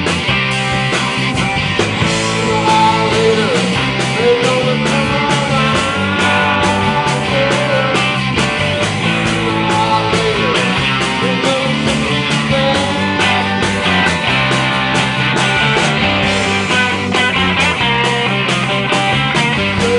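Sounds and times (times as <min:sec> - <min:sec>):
bass guitar: 0:00.0 - 0:19.9
drum kit beat: 0:00.0 - 0:19.9
electric guitars: 0:00.0 - 0:19.9.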